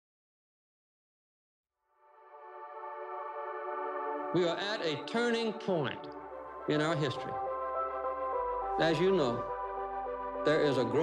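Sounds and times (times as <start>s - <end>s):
faint music: 4.2s - 11.0s.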